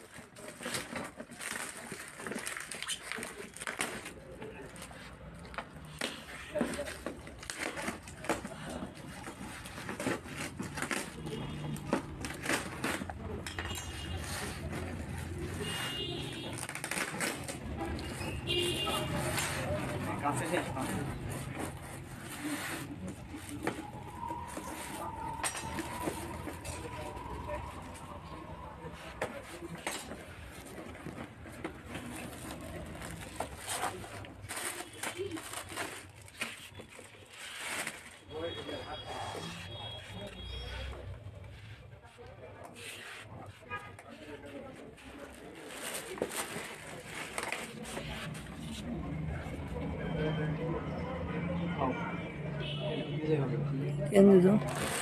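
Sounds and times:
cardboard and tape ripping: 0.0s - 5.0s, 5.9s - 27.5s, 29.0s - 38.2s, 44.9s - 49.0s, 54.6s - 55.0s.

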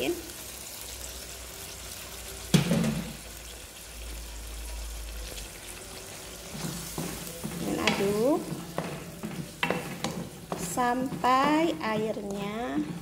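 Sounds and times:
sauce simmering and sizzling: 0.0s - 13.0s
knock on wok: 2.5s - 3.2s, 7.0s - 13.0s.

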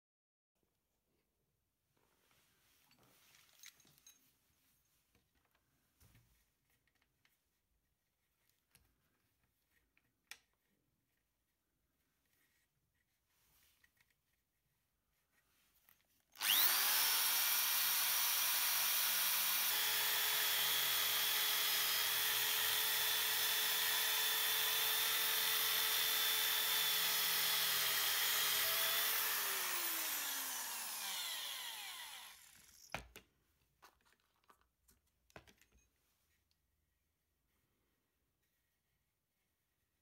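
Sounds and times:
electric drill sanding metal: 16.4s - 32.9s.

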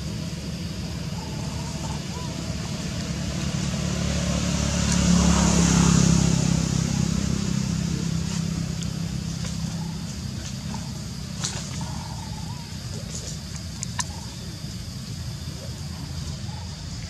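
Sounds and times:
vehicle engine passing by: 0.6s - 12.3s.

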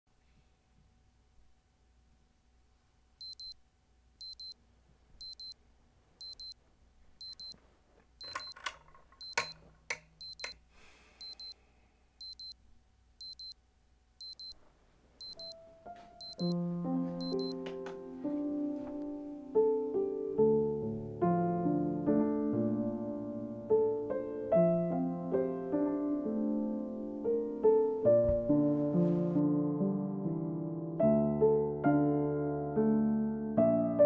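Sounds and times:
electronic alarm beeping: 3.2s - 3.6s, 4.2s - 4.6s, 5.2s - 5.6s, 6.2s - 6.6s, 7.2s - 7.6s, 8.2s - 8.6s, 9.2s - 9.6s, 10.2s - 10.6s, 11.2s - 11.6s, 12.2s - 12.6s, 13.2s - 13.6s, 14.2s - 14.6s, 15.2s - 15.6s, 16.2s - 16.6s, 17.2s - 17.6s
piano music: 15.4s - 34.0s.

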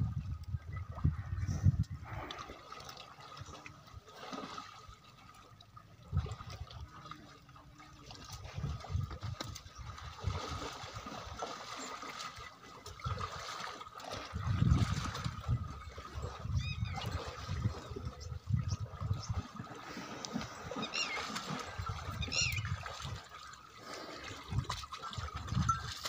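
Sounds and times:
water sloshing and splashing: 0.0s - 26.0s.

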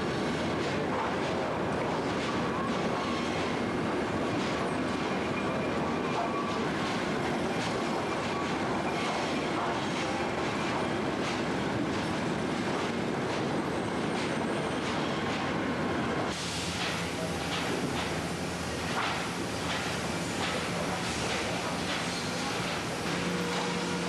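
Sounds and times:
sawmill machinery din: 18.9s - 24.0s.

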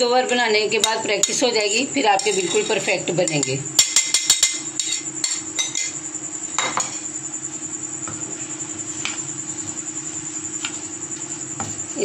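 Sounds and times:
spoon clinking in a steel pan: 2.2s - 5.9s.

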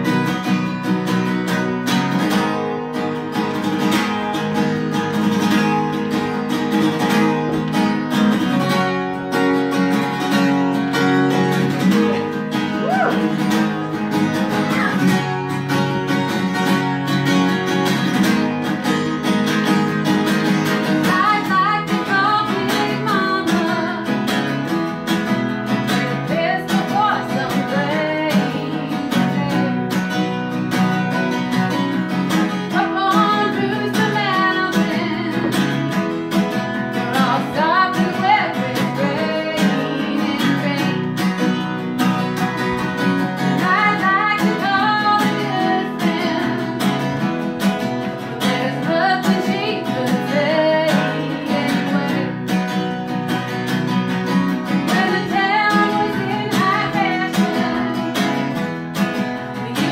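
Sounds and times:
acoustic guitar strumming: 0.0s - 59.9s
person singing: 11.8s - 13.7s, 21.0s - 24.3s, 25.9s - 30.0s, 32.7s - 35.9s, 36.9s - 41.5s, 43.6s - 47.2s, 48.2s - 52.5s, 54.8s - 58.6s, 59.4s - 59.9s.

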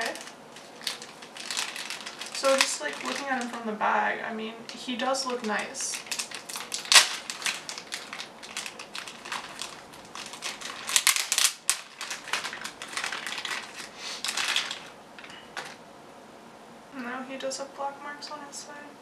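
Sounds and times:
plastic bag crinkling: 0.0s - 3.8s, 4.7s - 15.8s.

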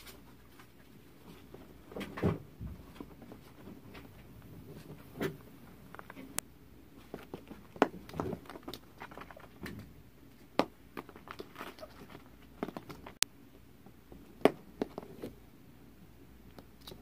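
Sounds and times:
plastic balls bouncing on carpet: 7.0s - 13.2s, 14.1s - 15.4s
ferret scampering: 7.2s - 9.8s, 11.0s - 13.2s.

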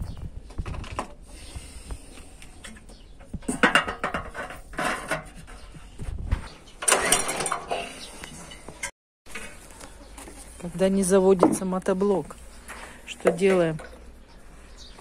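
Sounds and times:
hands scraping and rattling engine: 0.6s - 10.6s.

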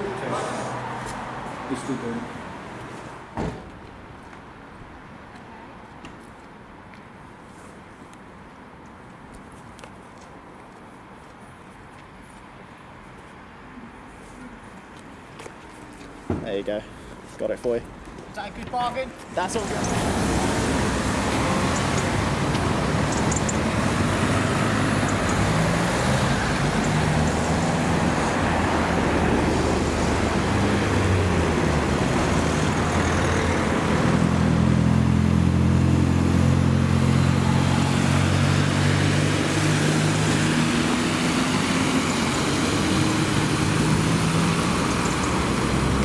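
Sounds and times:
road traffic noise: 0.0s - 46.0s
vehicle engine low hum: 19.6s - 46.0s.

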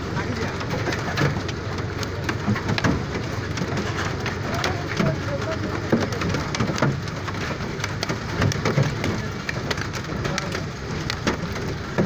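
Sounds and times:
hailstones striking hard surfaces: 0.0s - 12.0s.

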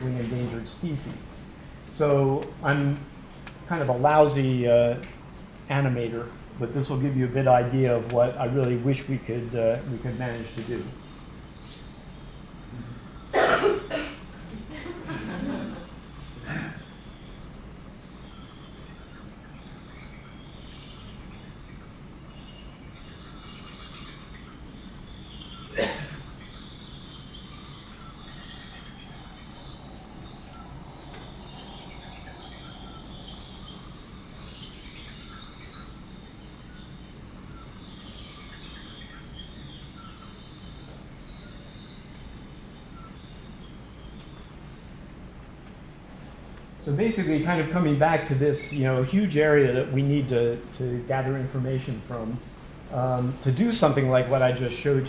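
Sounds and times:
insects droning: 0.0s - 55.0s
high chirps: 6.0s - 45.6s.

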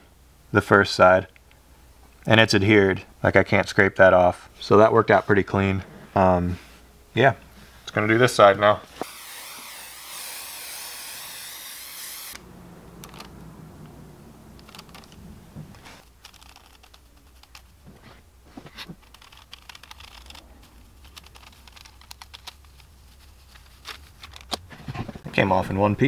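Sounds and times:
steady hiss: 7.8s - 12.5s
paper rustling: 14.6s - 25.2s.

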